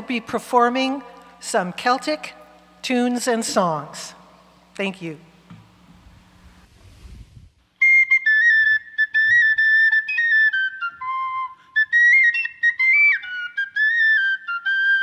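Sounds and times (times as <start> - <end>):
tin whistle melody: 7.8 - 15.0.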